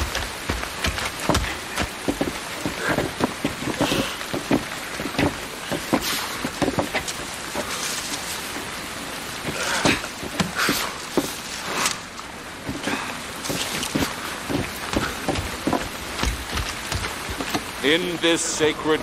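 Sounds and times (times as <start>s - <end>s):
raindrop taps: 0.0s - 8.7s, 12.7s - 17.9s
steady rain falling: 0.0s - 19.0s.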